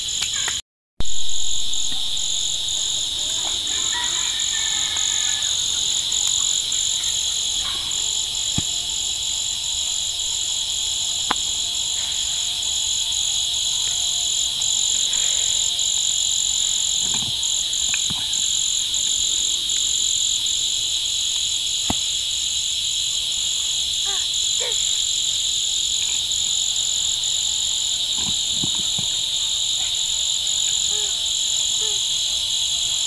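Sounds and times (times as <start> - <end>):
insects buzzing shrilly: 0.0 - 33.0
high insect trilling: 0.1 - 33.0.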